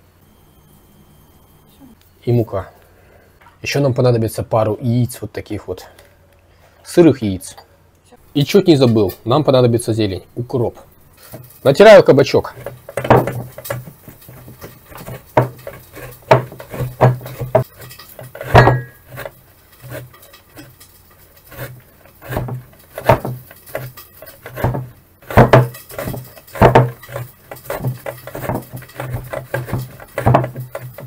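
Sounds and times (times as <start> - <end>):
vegetable rasping on metal grater: 11.2 - 31.0.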